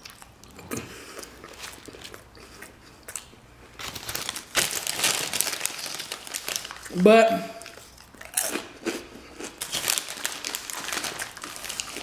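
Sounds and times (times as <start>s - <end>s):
mouth chewing and smacking: 0.0s - 3.9s, 7.6s - 12.0s
chip bag crinkling: 3.8s - 7.0s, 7.6s - 12.0s.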